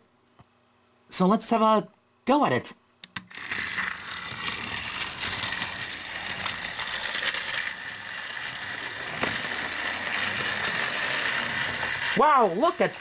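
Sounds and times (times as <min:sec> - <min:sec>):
toy motor whine: 0:03.3 - 0:13.0.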